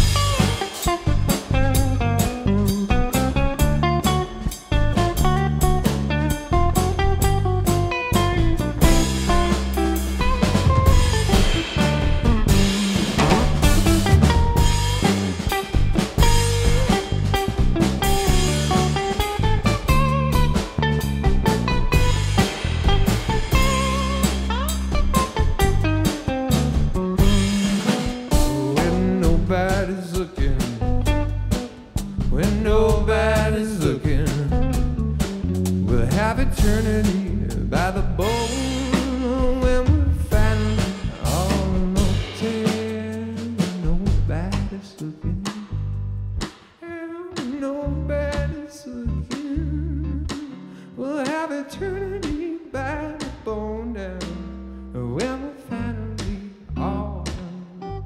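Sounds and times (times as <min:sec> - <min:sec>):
drum kit: 0:00.0 - 0:54.6, 0:55.2 - 0:58.0
live funk band playing: 0:00.0 - 0:58.0
person singing: 0:27.2 - 0:31.1, 0:32.2 - 0:35.0, 0:35.9 - 0:45.9, 0:46.8 - 0:58.0.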